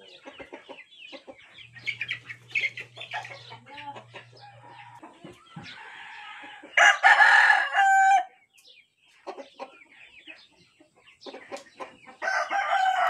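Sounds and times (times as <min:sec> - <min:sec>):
rooster crowing: 0:05.8 - 0:08.3, 0:12.2 - 0:13.0.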